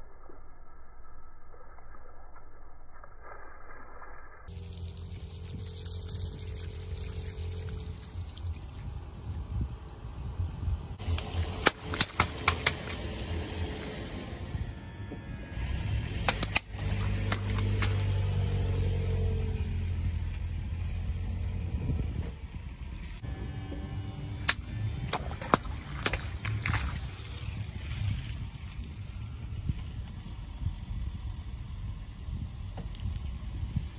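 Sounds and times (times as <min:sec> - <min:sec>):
water splashing: 0:04.5 - 0:09.9, 0:11.0 - 0:14.4, 0:15.6 - 0:18.8, 0:24.5 - 0:28.5
car engine hum: 0:04.5 - 0:33.9
balloons popping: 0:16.2 - 0:18.0.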